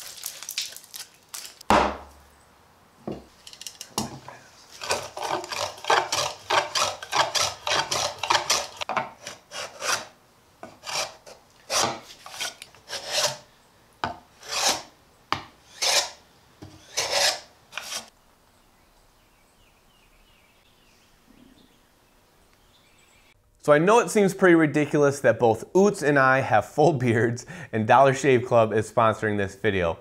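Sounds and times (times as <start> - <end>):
hand plane shaving wood: 4.7 - 13.5, 14.4 - 14.9, 15.7 - 18.1.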